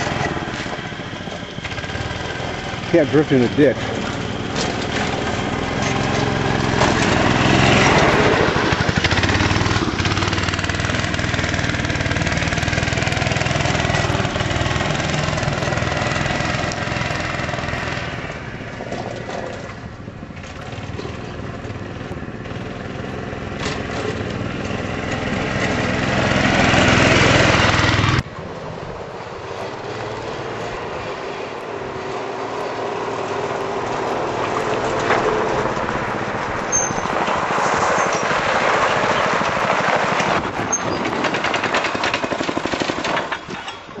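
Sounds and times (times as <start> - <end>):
go-kart engine running: 0.0 - 44.0.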